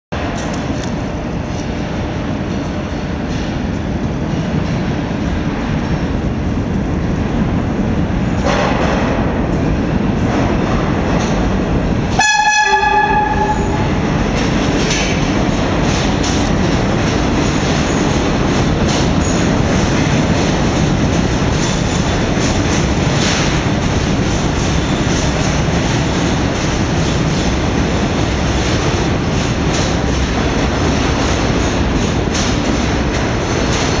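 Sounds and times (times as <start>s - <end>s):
train wheels clattering on rails: 0.2s - 34.0s
train horn blast: 12.1s - 13.9s.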